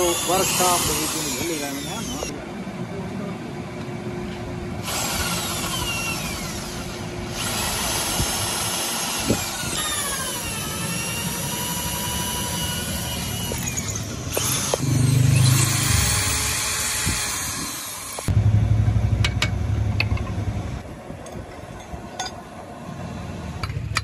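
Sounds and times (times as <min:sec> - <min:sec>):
electric drill boring wood: 0:00.0 - 0:02.3, 0:04.8 - 0:18.3.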